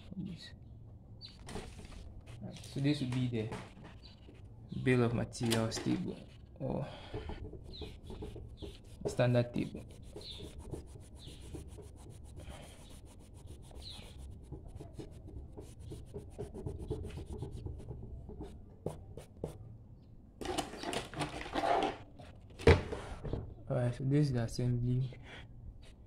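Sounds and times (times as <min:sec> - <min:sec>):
paper handling rustle: 0:01.3 - 0:04.5
hand rubbing on paper: 0:06.0 - 0:19.6.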